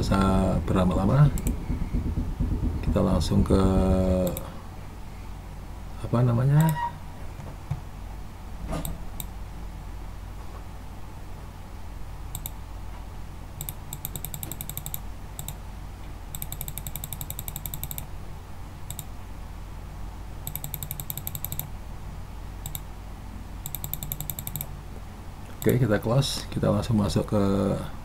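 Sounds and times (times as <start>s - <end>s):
low hum: 0.0s - 12.6s
computer mouse clicking: 1.4s - 1.6s, 4.2s - 4.5s, 12.3s - 12.6s, 13.6s - 15.6s, 16.3s - 18.1s, 18.9s - 19.1s, 20.4s - 21.7s, 22.6s - 22.9s, 23.6s - 24.7s.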